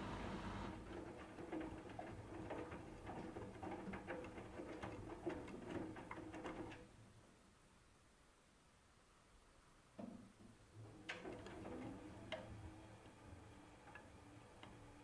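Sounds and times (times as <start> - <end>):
washing machine motor hum: 0.0 - 6.8, 10.7 - 15.0.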